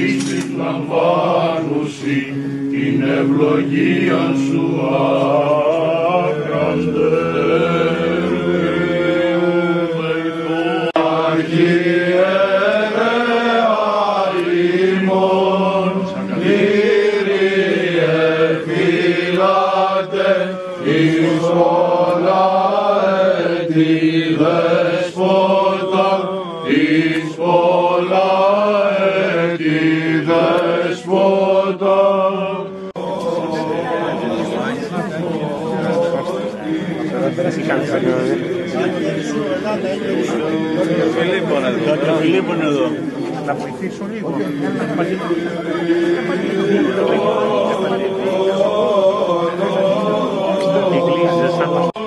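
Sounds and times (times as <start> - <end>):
low held drone note: 0.0 - 11.0
men chanting a hymn: 0.0 - 52.0.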